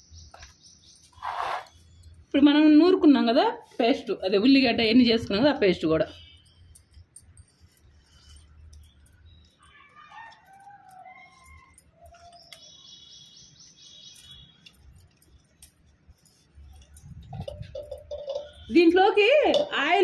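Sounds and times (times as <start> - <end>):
faint birdsong: 0.0 - 2.7, 6.0 - 18.8.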